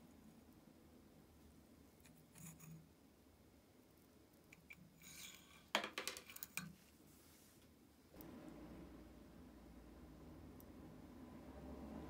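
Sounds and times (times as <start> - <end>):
tweezers scraping metal: 2.0 - 2.9, 4.7 - 5.7.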